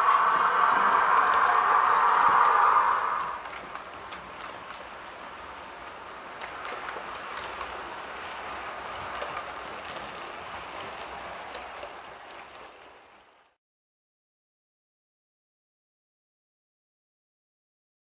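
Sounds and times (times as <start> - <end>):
model train wheels on rails: 0.0 - 13.6.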